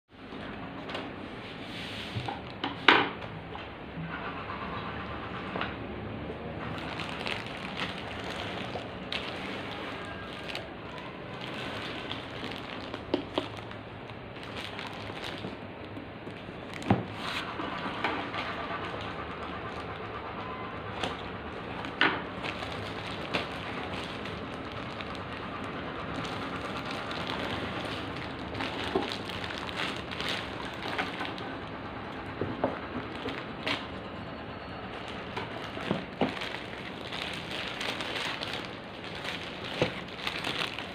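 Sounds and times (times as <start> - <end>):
plastic packaging crinkling: 6.6 - 20.2, 20.9 - 34.2, 34.8 - 40.9.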